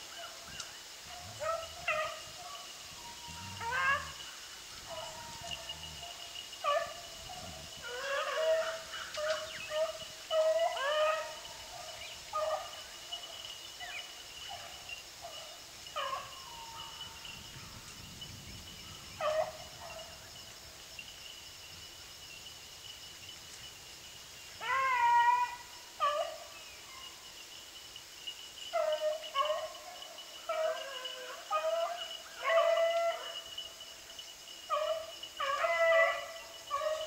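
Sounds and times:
beagle pack baying: 1.1 - 12.8, 28.8 - 33.4, 34.7 - 37.0.

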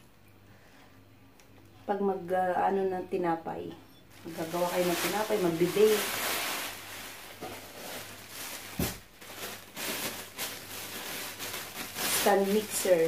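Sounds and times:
plastic wrapping crinkling: 4.1 - 13.0.

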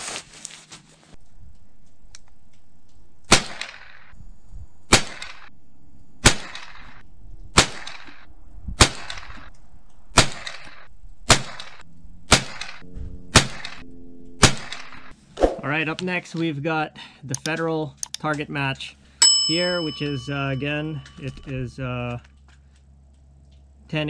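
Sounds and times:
rifle shots with echo: 6.2 - 9.5, 10.1 - 13.8, 14.4 - 15.1.

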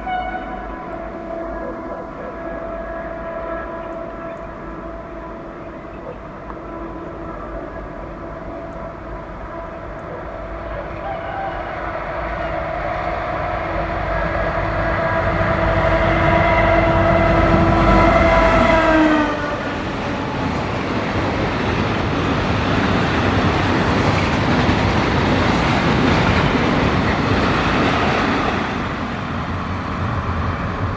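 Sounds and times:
locomotive horn blast: 0.0 - 20.4
train wagons rumbling on track: 0.0 - 30.9.

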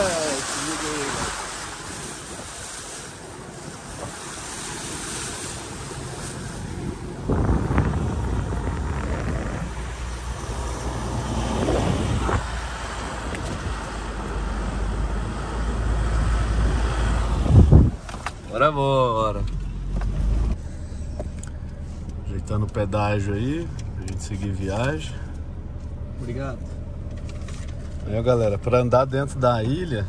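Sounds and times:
vehicle driving on dirt trail: 0.0 - 30.0
wind buffeting microphone: 1.0 - 14.4, 15.1 - 18.1.

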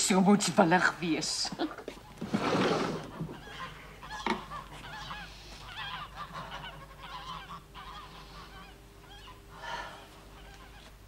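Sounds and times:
geese honking: 3.1 - 10.9.

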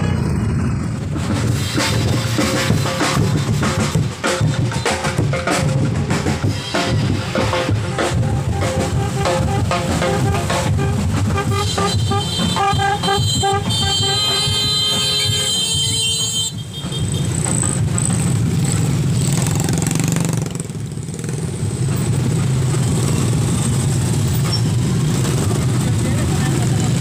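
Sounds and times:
horns tooting: 0.0 - 0.7, 6.4 - 17.9
motorcycle engines rumbling: 0.0 - 27.0.

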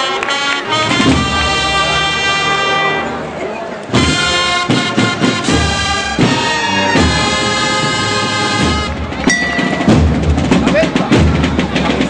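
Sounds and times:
loud brass chords: 0.0 - 10.6
drum strokes: 3.9 - 12.0.

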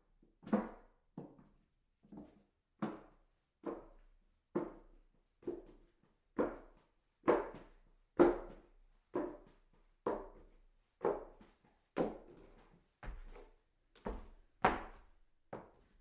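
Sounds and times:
footsteps on hollow wooden stairs: 11.1 - 15.9.

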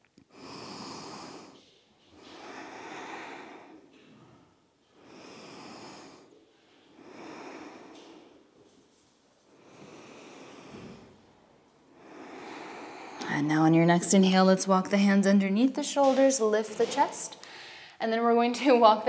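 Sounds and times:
woman breathing deeply: 0.2 - 8.8, 9.5 - 13.4, 17.4 - 18.0.

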